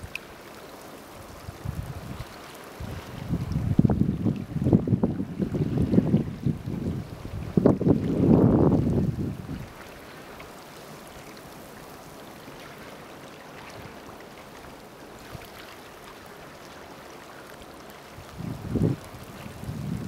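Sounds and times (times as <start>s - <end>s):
faint crackling ticks: 0.0s - 0.9s
water trickling and lapping: 0.0s - 20.0s.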